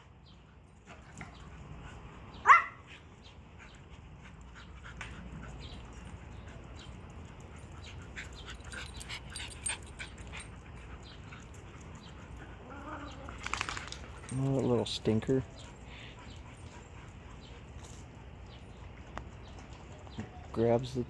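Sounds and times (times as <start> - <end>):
dog barking: 2.4 - 2.8.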